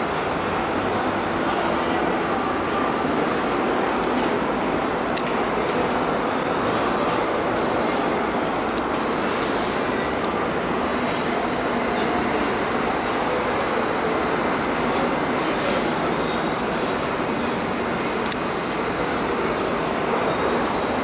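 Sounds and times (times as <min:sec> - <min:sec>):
subway train running on rails: 0:00.0 - 0:21.0.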